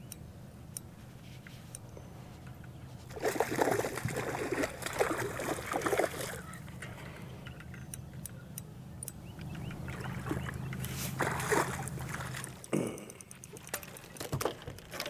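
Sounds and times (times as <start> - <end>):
water splashing: 3.1 - 6.9, 9.8 - 12.9.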